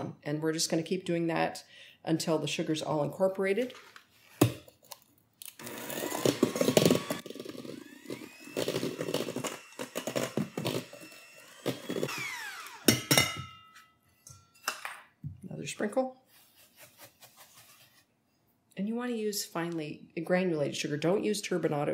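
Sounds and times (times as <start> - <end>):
electric hand mixer whining: 5.6 - 13.5.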